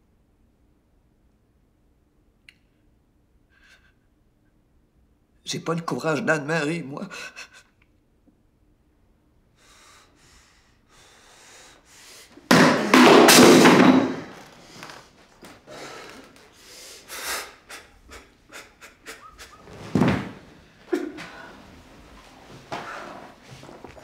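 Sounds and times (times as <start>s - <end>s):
man panting hard: 9.6s - 12.5s, 15.6s - 19.7s
knocks and thumps: 12.5s - 14.5s, 19.7s - 20.5s.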